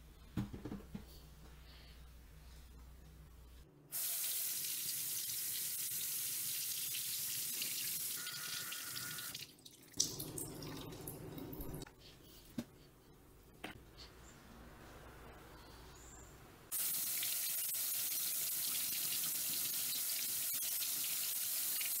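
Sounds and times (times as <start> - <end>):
faucet water splashing in sink: 4.0 - 11.8, 16.7 - 22.0.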